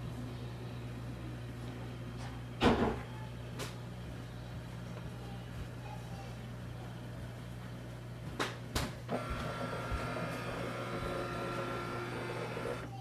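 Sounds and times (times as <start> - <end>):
scanner motor whining: 9.1 - 13.0.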